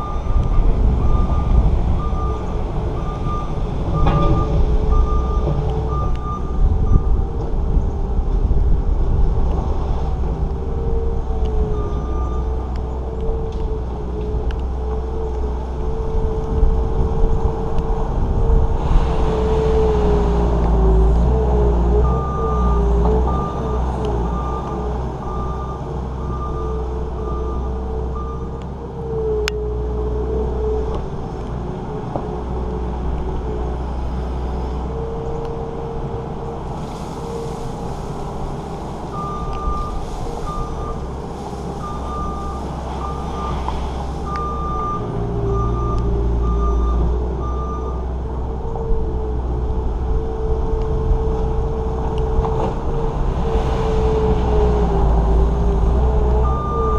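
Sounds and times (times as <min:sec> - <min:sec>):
diesel engine running: 0:00.0 - 0:56.9
backup alarm beeping: 0:56.4 - 0:56.9.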